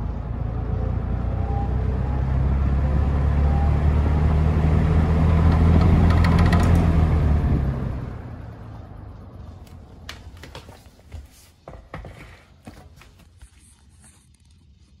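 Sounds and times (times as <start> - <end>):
box fan motor humming: 1.0 - 10.6
fan being handled clicks: 5.3 - 7.6.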